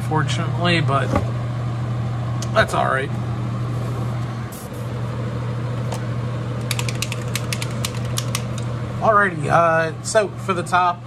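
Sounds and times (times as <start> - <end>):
exhaust fan humming: 0.0 - 11.0.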